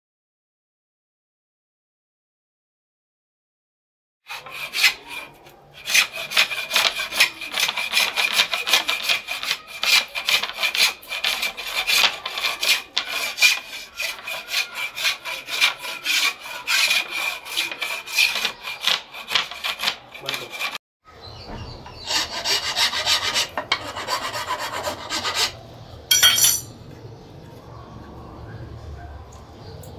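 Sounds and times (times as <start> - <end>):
sandpaper rasping on wood: 4.3 - 20.8, 22.0 - 25.6.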